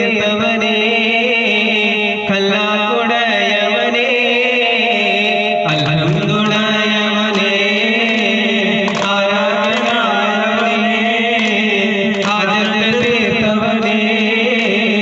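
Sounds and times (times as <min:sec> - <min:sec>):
group chanting in chorus: 0:03.4 - 0:15.0
steady held note: 0:03.9 - 0:07.3.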